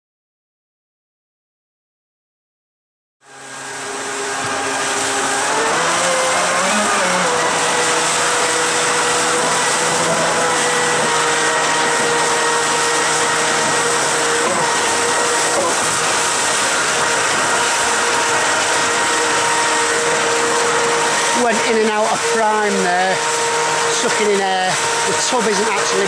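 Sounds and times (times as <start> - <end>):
churning frothing water: 3.2 - 26.0
electric motor whine: 3.2 - 26.0.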